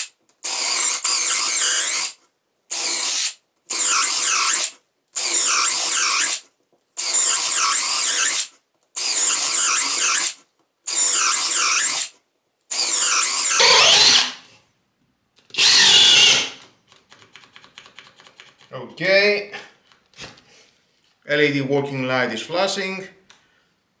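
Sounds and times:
cordless drill drilling: 0.5s - 6.4s, 7.0s - 12.1s, 12.7s - 14.4s, 15.5s - 16.6s.

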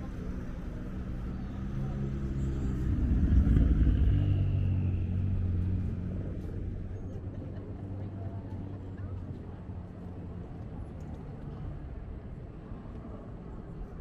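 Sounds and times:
vehicle engine driving past: 0.1s - 7.3s.

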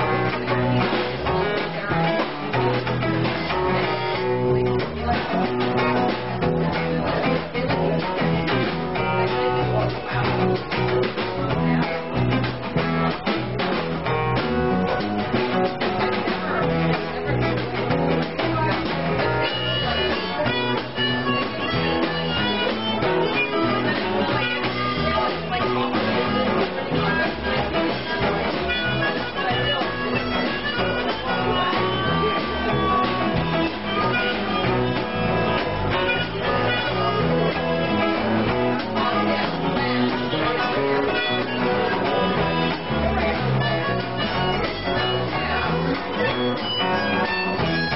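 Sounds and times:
acoustic guitar strummed: 0.0s - 47.9s
live band playing: 0.0s - 47.9s.

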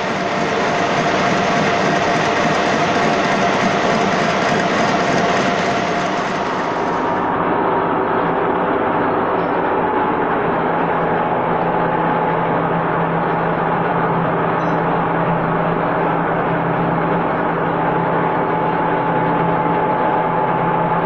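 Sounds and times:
lathe humming: 0.0s - 9.0s.

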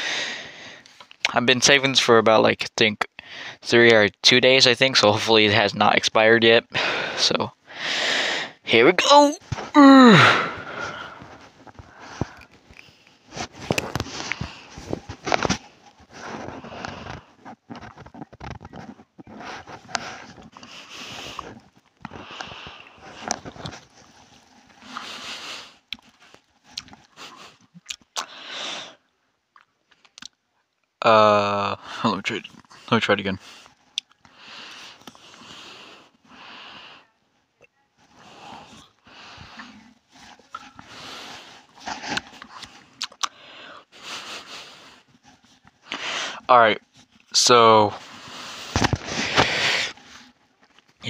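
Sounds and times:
heavy breathing: 0.0s - 1.0s, 3.2s - 3.6s, 6.7s - 17.6s, 38.1s - 46.5s, 47.5s - 50.3s
person gulping from plastic bottle: 9.0s - 28.4s, 38.1s - 43.4s.

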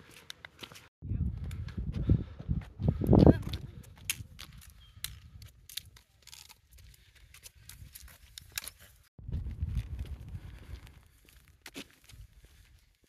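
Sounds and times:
footsteps crunching on path: 0.0s - 13.0s
wind buffeting microphone: 1.0s - 5.9s, 9.2s - 11.1s.

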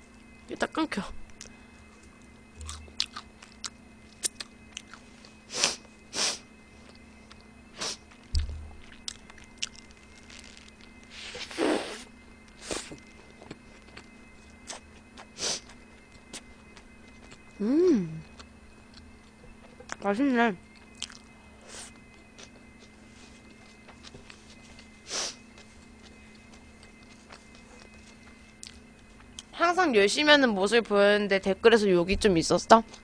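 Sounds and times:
person chewing: 2.6s - 5.8s, 8.1s - 11.6s, 18.2s - 19.0s, 20.9s - 23.9s.

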